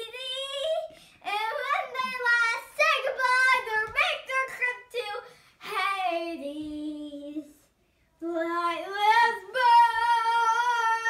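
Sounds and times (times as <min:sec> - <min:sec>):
girl singing long notes: 0:08.2 - 0:11.0.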